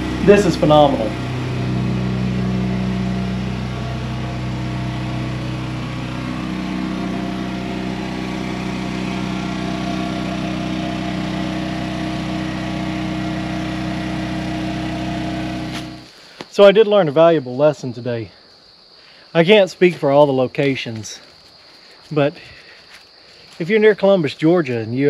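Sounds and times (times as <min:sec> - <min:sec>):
engine droning steadily: 0:00.0 - 0:16.1.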